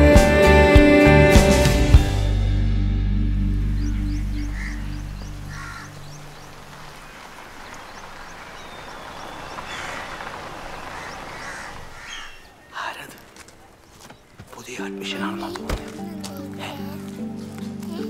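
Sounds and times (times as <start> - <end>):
steady outdoor hiss: 2.0 - 18.0
small birds chirping: 3.5 - 18.0
crows cawing: 3.8 - 12.9.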